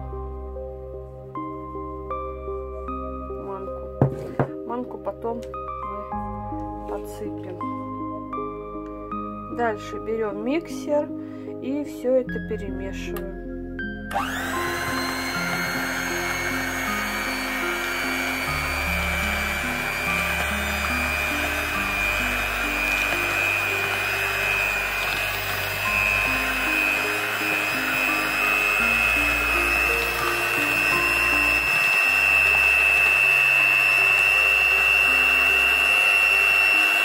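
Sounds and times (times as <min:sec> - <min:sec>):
background music: 0:00.0 - 0:37.0
electric hand mixer whining: 0:14.1 - 0:37.0.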